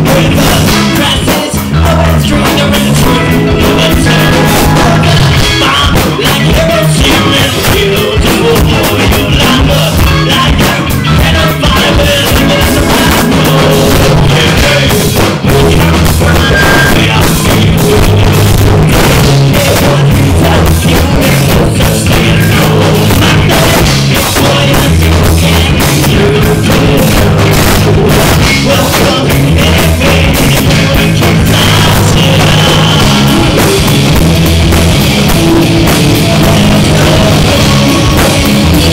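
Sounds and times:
bass guitar: 0:00.0 - 0:38.9
drum kit: 0:00.0 - 0:38.9
electric guitars: 0:00.0 - 0:38.9
person singing: 0:00.0 - 0:38.9.

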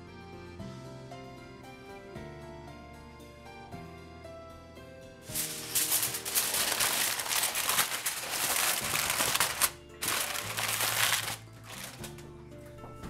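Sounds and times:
soft background music: 0:00.0 - 0:13.0
aluminum foil crinkling: 0:05.3 - 0:12.3.

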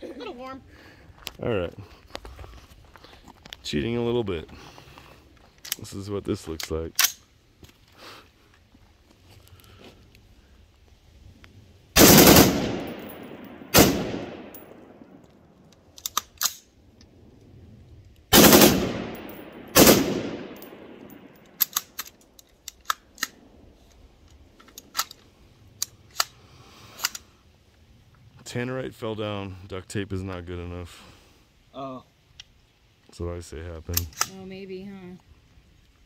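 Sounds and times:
rifle gunshots echoing: 0:12.0 - 0:15.2, 0:18.3 - 0:21.8.

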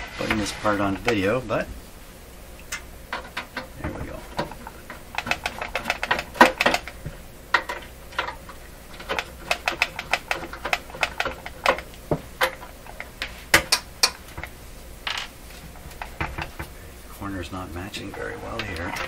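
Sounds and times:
loose screws knocking: 0:03.1 - 0:14.5.

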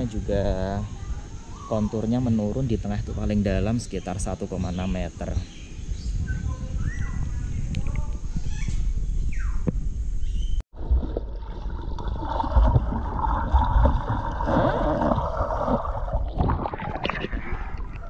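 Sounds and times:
underwater gurgling and churning: 0:10.7 - 0:18.0
water splashing: 0:10.8 - 0:18.0.

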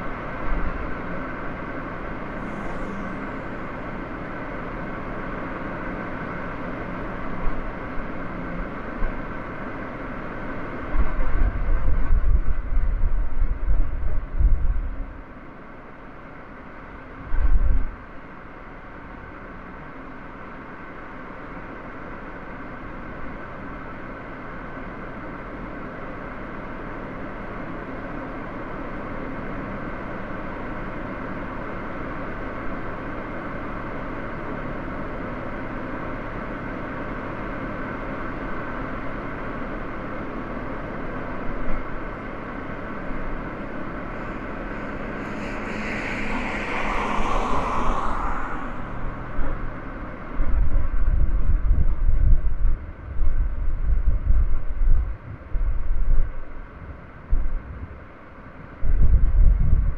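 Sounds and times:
car engine and road noise: 0:00.0 - 0:59.5
rushing sound: 0:42.8 - 0:51.2.

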